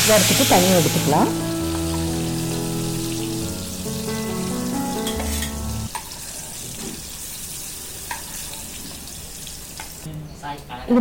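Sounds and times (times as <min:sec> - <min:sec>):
background music with held notes: 0:00.0 - 0:05.9
oil sizzling: 0:00.0 - 0:10.1.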